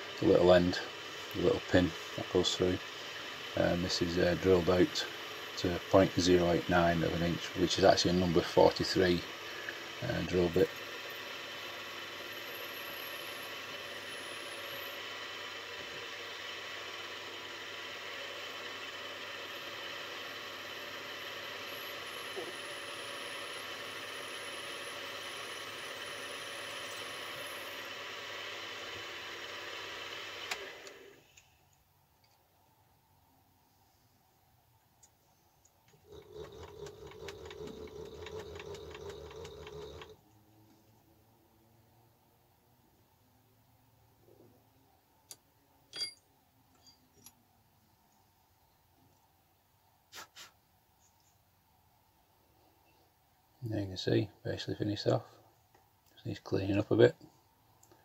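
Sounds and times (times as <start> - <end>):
faint high whine: 0.0 - 29.2, 45.3 - 47.4
milling machine whirring: 0.0 - 31.2, 35.9 - 40.2
rapid regular clicking: 35.0 - 40.2.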